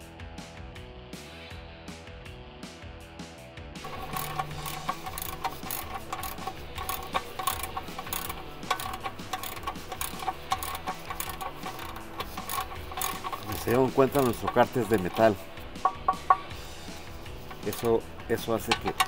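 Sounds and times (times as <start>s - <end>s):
ratchet wrench clicking: 3.8s - 19.0s.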